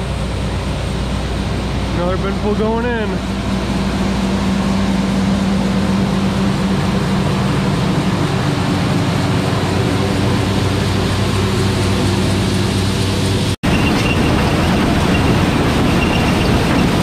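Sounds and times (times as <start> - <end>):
combine engine hum: 0.0 - 17.0
grain rushing through auger: 4.3 - 17.0.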